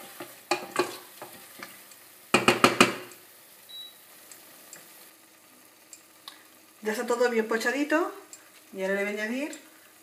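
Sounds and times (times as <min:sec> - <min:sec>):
low sizzle: 0:00.0 - 0:10.0
spatula knocking against pot: 0:02.3 - 0:03.1.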